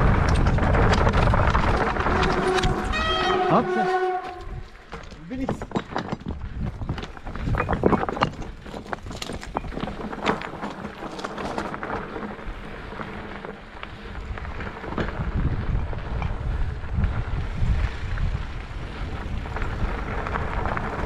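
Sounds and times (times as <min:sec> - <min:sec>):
wind buffeting microphone: 0:00.0 - 0:21.0
clicks and rattles: 0:04.9 - 0:11.8.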